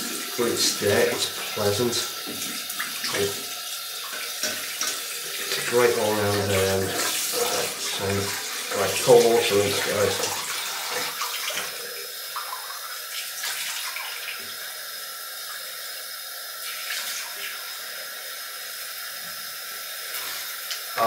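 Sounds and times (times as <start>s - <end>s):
tap running into sink: 0.0s - 3.5s, 4.1s - 11.8s
water splashes: 0.0s - 11.8s.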